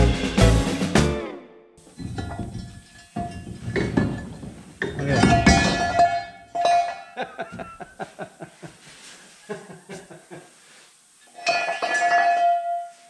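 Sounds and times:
picked guitar notes: 0:00.0 - 0:01.8.

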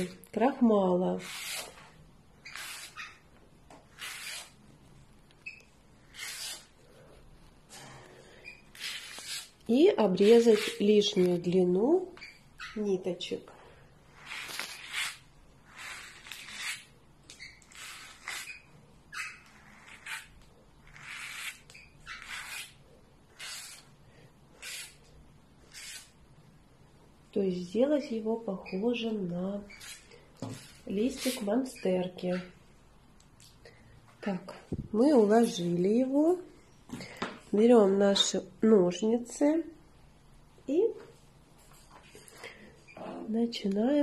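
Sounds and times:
fingers rubbing cord fibres: 0:01.2 - 0:04.6, 0:05.3 - 0:06.8, 0:08.6 - 0:11.4, 0:14.1 - 0:26.2, 0:28.7 - 0:32.6.

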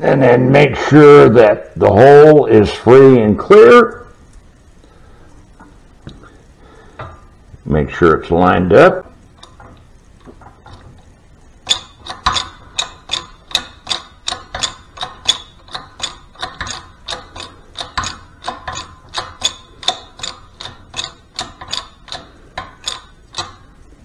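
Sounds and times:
shop press metallic clicks: 0:11.6 - 0:23.7.

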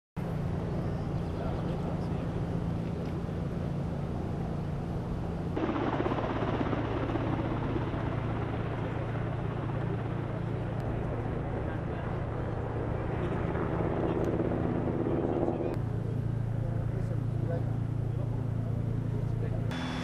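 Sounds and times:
engine drone: 0:15.6 - 0:20.0.

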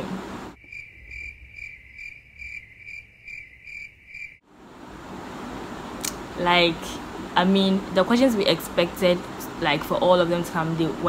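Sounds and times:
crickets chirping: 0:00.5 - 0:04.4.

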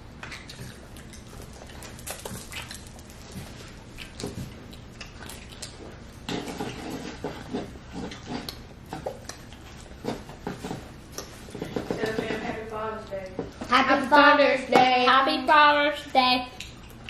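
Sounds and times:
chewing and lip-smacking: 0:00.1 - 0:12.2, 0:16.4 - 0:17.0.

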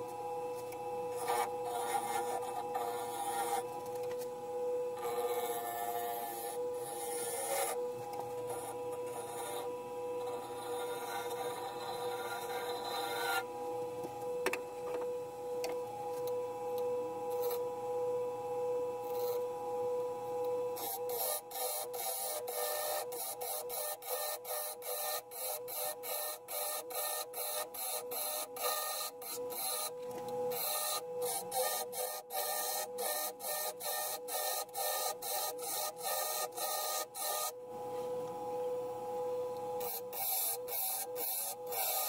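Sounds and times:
wood lathe motor whine: 0:00.0 - 0:42.0
turning tool scraping wood: 0:00.5 - 0:04.4, 0:05.0 - 0:13.5, 0:20.8 - 0:38.2.

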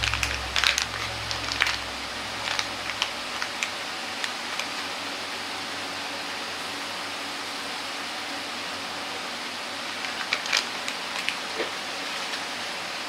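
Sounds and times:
low hum: 0:00.0 - 0:07.2
steady hiss: 0:00.0 - 0:13.0.

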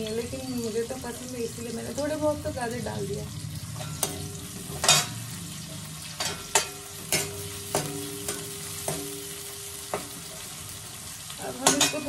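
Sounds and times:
onions sizzling in oil: 0:00.0 - 0:12.0.

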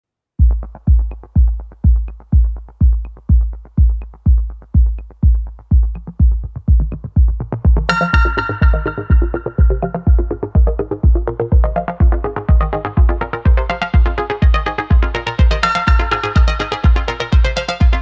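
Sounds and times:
electronic music kick-drum beat: 0:00.4 - 0:18.0
bright synth melody: 0:07.9 - 0:18.0.

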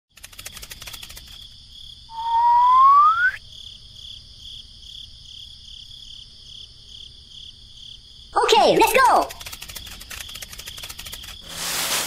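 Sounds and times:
quick run of clicks: 0:00.1 - 0:01.6, 0:08.8 - 0:11.4
crickets chirping: 0:00.2 - 0:12.0
rising whistle-like tone: 0:02.1 - 0:03.4.

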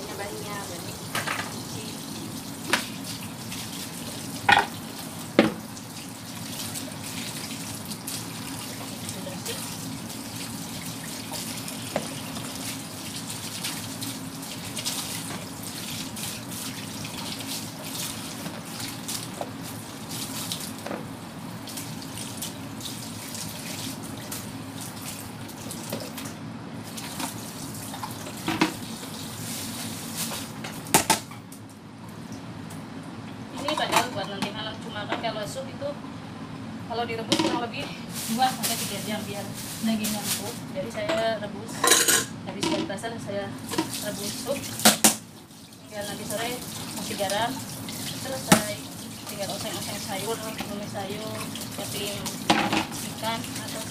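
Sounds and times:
tap running into sink: 0:05.4 - 0:05.7.

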